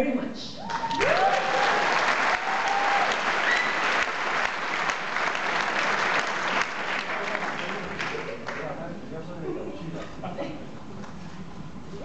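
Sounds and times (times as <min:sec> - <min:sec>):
whoops and cheers: 0:00.6 - 0:04.0
audience clapping: 0:00.6 - 0:08.8.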